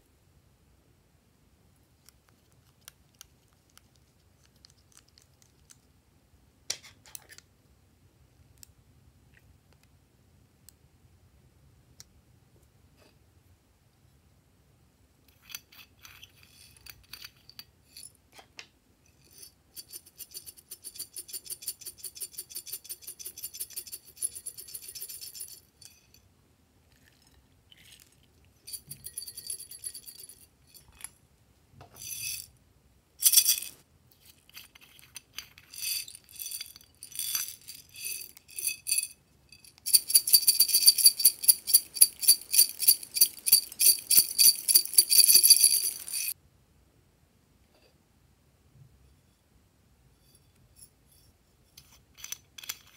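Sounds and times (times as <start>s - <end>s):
plastic beads rattling: 33.2s - 46.4s.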